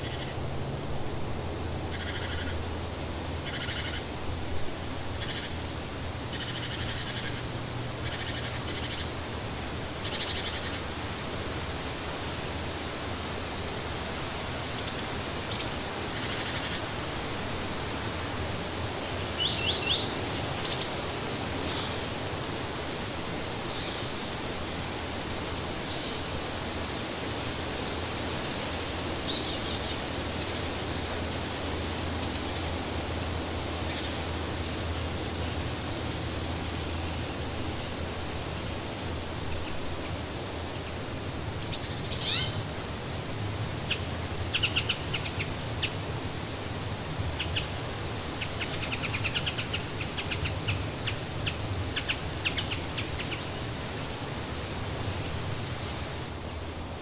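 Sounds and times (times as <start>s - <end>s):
steady rushing hiss: 0.0s - 57.0s
birds chirping: 40.6s - 56.8s.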